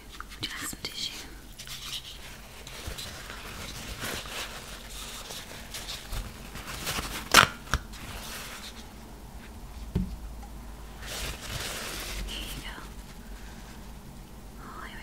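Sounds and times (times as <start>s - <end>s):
tissue paper rustling: 1.6s - 9.0s, 10.9s - 14.0s
soft thump: 9.9s - 10.5s.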